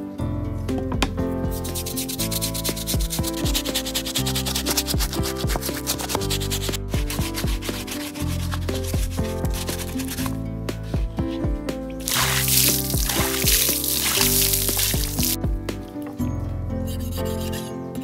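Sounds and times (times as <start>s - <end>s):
background music: 0.0s - 18.0s
stiff brush scrubbing hide: 1.5s - 15.4s.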